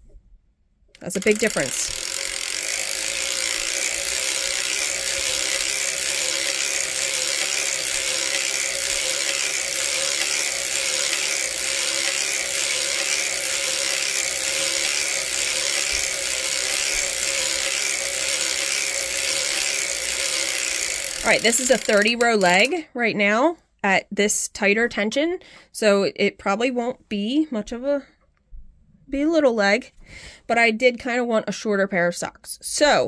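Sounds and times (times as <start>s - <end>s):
knitting machine needles clattering: 1.0s - 22.8s.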